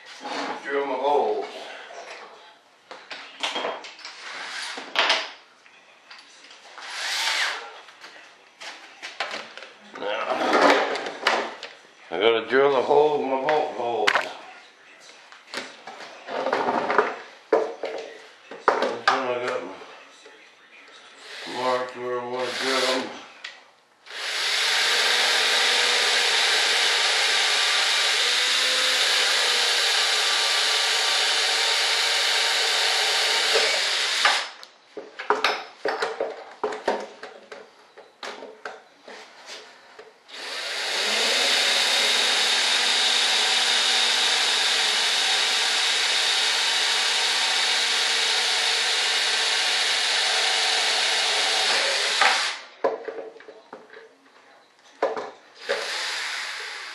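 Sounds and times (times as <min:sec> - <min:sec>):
power drill boring: 0:06.8 - 0:07.6, 0:22.4 - 0:23.1, 0:24.1 - 0:34.5, 0:40.3 - 0:52.6, 0:55.6 - 0:56.9.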